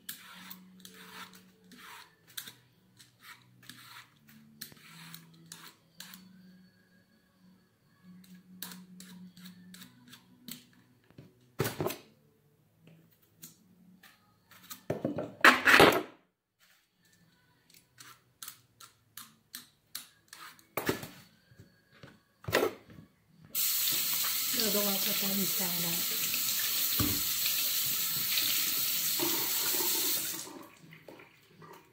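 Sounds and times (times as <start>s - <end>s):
water tap running: 23.6s - 30.9s.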